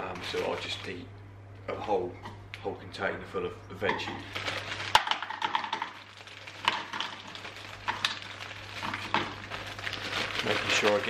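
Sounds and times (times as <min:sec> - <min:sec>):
frozen vegetables clattering: 0:00.0 - 0:01.0, 0:03.9 - 0:11.0
plastic bag crinkling: 0:00.0 - 0:01.0, 0:03.9 - 0:11.0.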